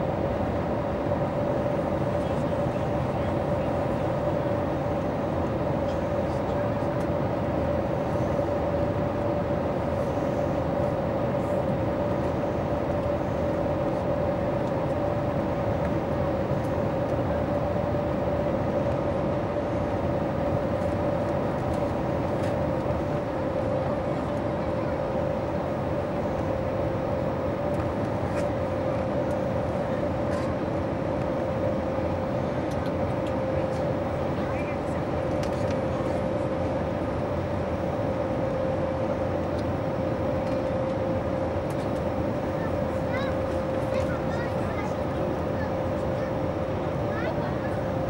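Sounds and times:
airplane cabin engine hum: 0:00.0 - 0:48.0.

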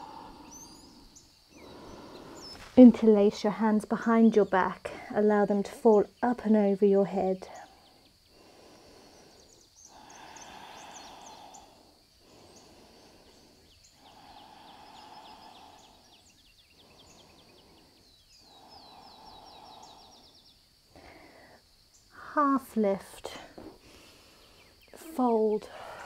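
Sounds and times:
faint slow breathing: 0:00.0 - 0:02.8, 0:07.5 - 0:21.9, 0:23.3 - 0:25.0, 0:25.6 - 0:26.0
small birds chirping: 0:00.0 - 0:02.9, 0:07.3 - 0:22.2, 0:23.6 - 0:25.6.

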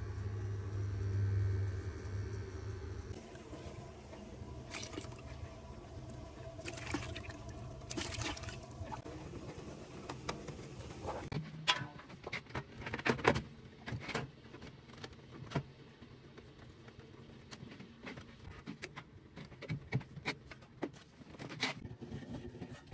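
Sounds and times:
faint low hum: 0:00.0 - 0:09.0.

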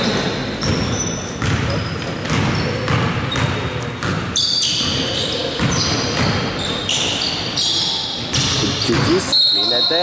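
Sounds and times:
sneakers squeaking on floor: 0:00.0 - 0:10.0
basketball bouncing on wooden floor: 0:00.6 - 0:05.0.

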